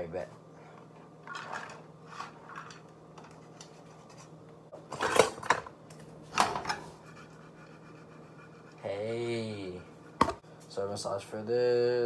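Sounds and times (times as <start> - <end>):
kitchenware clattering: 4.8 - 5.7, 6.3 - 7.0.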